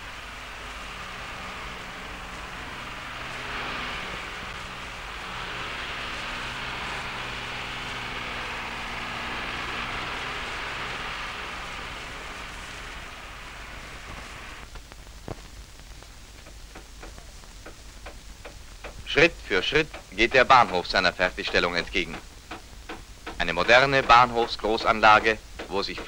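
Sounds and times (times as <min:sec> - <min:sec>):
construction machinery rushing hum: 0:00.0 - 0:14.7, 0:23.3 - 0:26.0
old film crackle and clicks: 0:00.1 - 0:19.1, 0:19.7 - 0:26.0.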